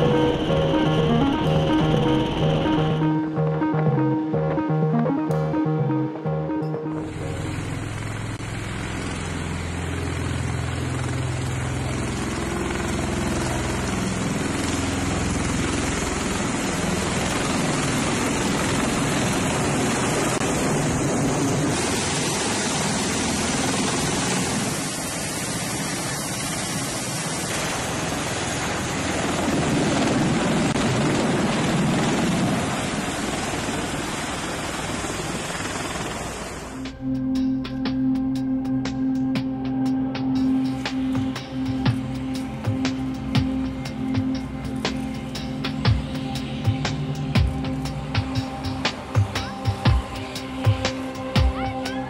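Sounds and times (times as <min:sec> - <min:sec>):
aircraft rotor and engine noise: 0:00.0 - 0:04.3, 0:04.9 - 0:52.0.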